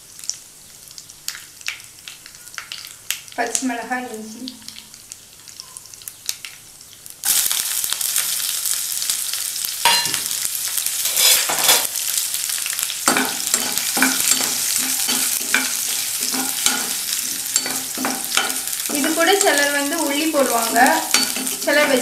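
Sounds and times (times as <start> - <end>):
chillies sizzling in hot oil: 0.0 - 22.0
spoon stirring and scraping pan: 11.0 - 12.0, 12.8 - 22.0.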